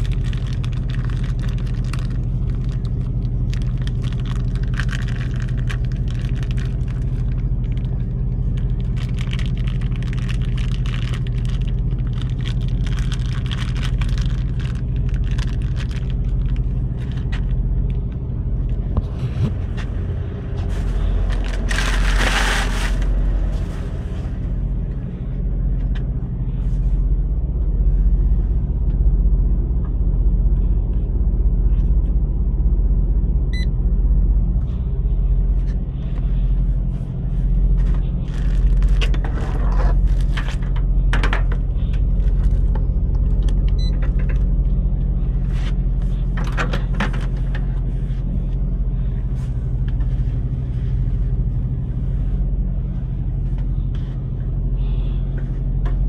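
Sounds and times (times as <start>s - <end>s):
plastic bag crinkling: 0.0s - 18.0s, 20.6s - 23.7s, 37.8s - 40.8s
diesel truck engine idling: 0.0s - 56.0s.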